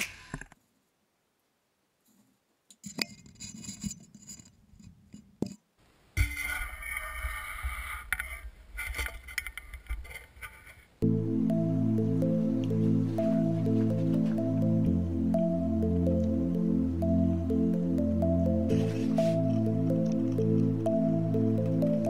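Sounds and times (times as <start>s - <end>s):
music: 11.0s - 22.0s.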